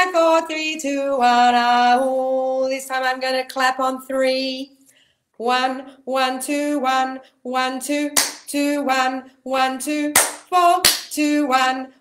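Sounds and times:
woman singing vocal warm-up: 0.0s - 4.8s, 5.4s - 12.0s
sharp hand clap: 8.2s - 8.5s, 10.2s - 11.2s.

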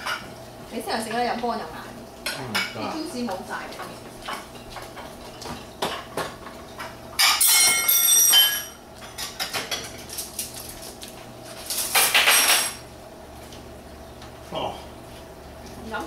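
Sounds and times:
dishes and cutlery clinking: 3.8s - 10.9s, 11.6s - 12.8s
dishes rattling: 4.2s - 10.8s.

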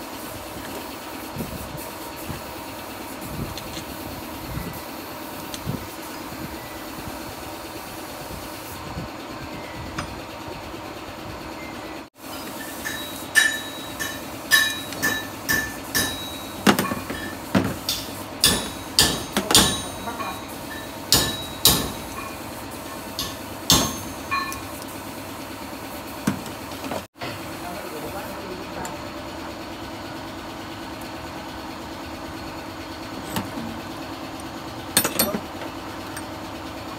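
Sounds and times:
tool knocking on metal: 12.8s - 22.4s, 23.2s - 24.6s.

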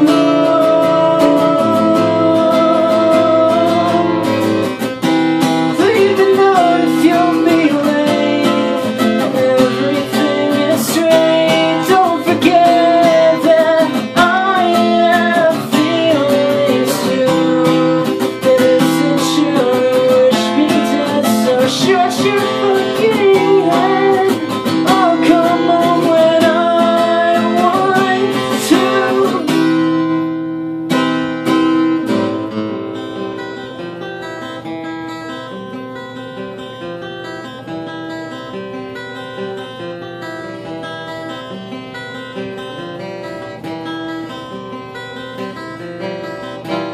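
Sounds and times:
man singing: 0.0s - 4.8s, 5.7s - 30.2s
strummed acoustic guitar: 0.0s - 46.9s.

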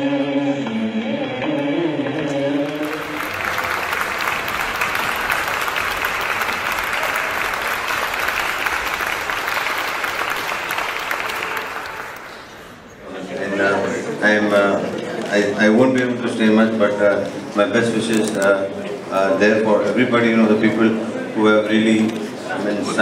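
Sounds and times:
audience applause: 2.6s - 12.8s.

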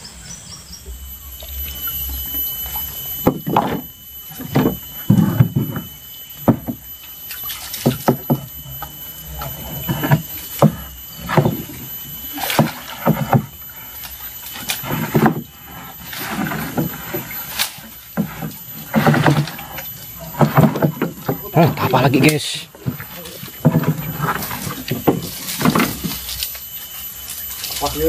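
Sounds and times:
water sloshing: 0.9s - 28.0s
knocks against wooden canoe: 3.2s - 6.8s, 7.8s - 8.9s, 9.8s - 11.8s, 12.4s - 13.5s, 18.2s - 26.2s.

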